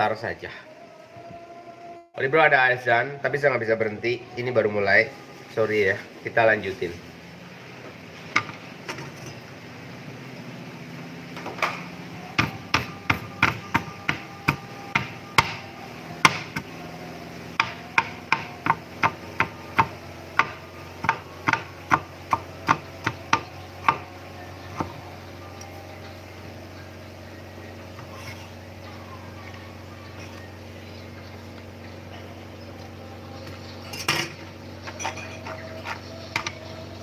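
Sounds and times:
cleaver chopping on wooden board: 0:12.4 - 0:16.7, 0:17.6 - 0:24.1.

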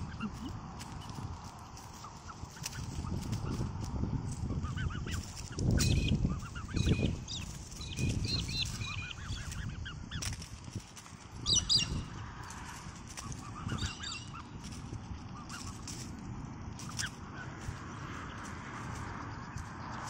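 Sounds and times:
swans peeping and whistling: 0:00.0 - 0:20.0.

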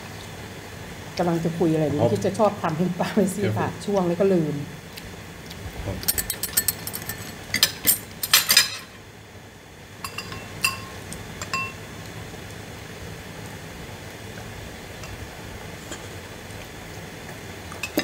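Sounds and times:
chopsticks clinking on ceramic bowls: 0:06.0 - 0:08.9, 0:10.1 - 0:11.8.

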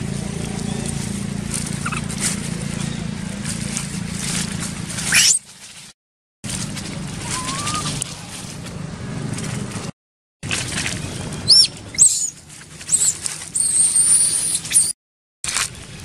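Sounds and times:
baby monkey squealing: 0:01.8 - 0:02.2, 0:05.1 - 0:05.4, 0:07.2 - 0:08.0, 0:11.4 - 0:15.0.

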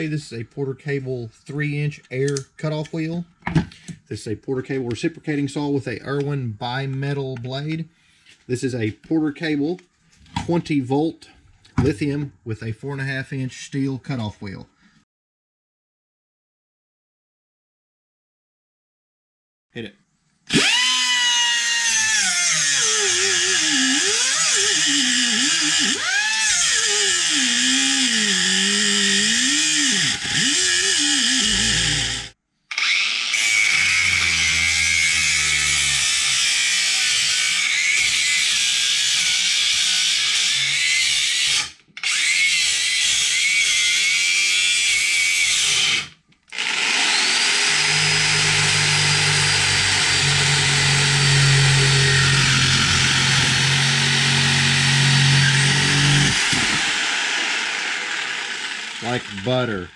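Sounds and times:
air cut-off wheel whining: 0:20.5 - 0:32.4, 0:46.6 - 0:59.5
cordless grinder cutting steel: 0:20.5 - 0:59.9
reciprocating saw buzzing: 0:20.5 - 0:59.9.

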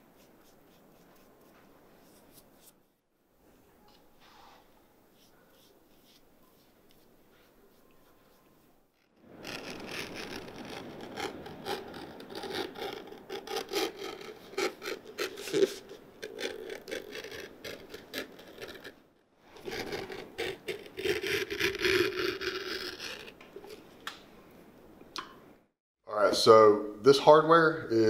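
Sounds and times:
hand tool scraping leather: 0:00.0 - 0:02.8, 0:05.1 - 0:23.8.

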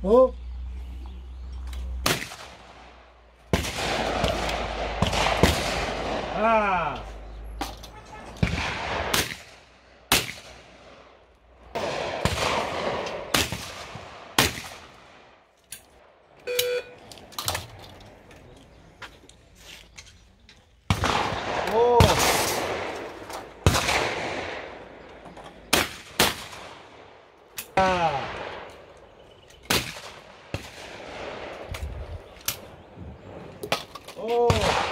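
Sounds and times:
shotgun shots with rolling echo: 0:02.0 - 0:06.8, 0:08.4 - 0:15.4, 0:20.9 - 0:25.0, 0:25.7 - 0:27.3, 0:29.7 - 0:31.7, 0:34.5 - 0:34.9.

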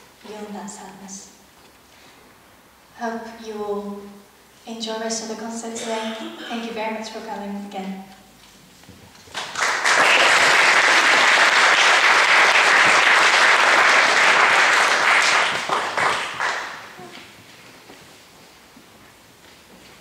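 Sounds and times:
audience applauding: 0:09.3 - 0:17.2.

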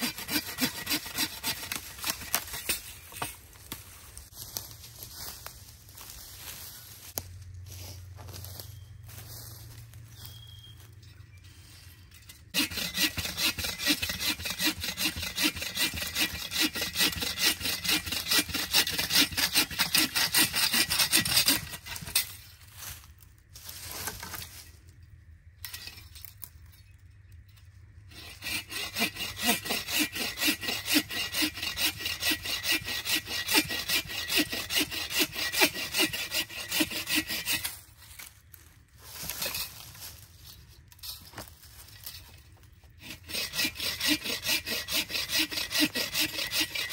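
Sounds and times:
hand saw cutting wood: 0:00.0 - 0:03.4, 0:12.5 - 0:22.5, 0:28.1 - 0:38.3, 0:42.9 - 0:46.9.

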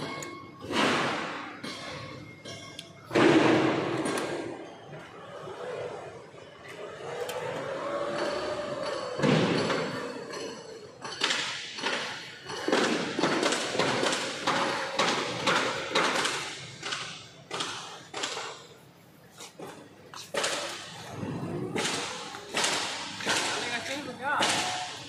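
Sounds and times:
sharp knocks and clatters: 0:08.8 - 0:18.8, 0:19.5 - 0:25.0.

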